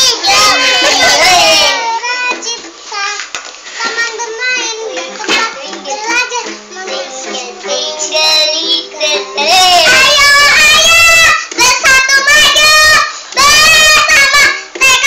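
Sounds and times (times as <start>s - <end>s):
girl singing: 0.0s - 15.0s.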